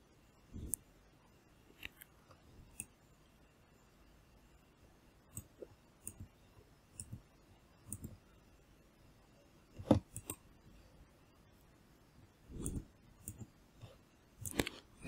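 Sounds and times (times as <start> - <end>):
computer mouse clicking: 7.0 - 7.2, 7.9 - 8.2, 9.8 - 10.5, 12.5 - 14.9.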